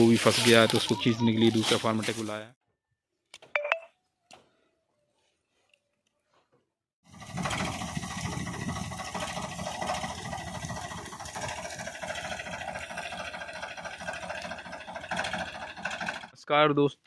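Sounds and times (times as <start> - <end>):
tractor diesel engine idling: 7.1 - 16.4.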